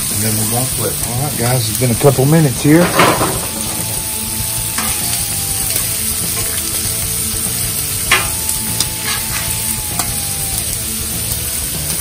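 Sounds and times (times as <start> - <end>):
seafood sizzling on a griddle: 0.0 - 12.0
metal spatula clacking on griddle: 2.7 - 10.2.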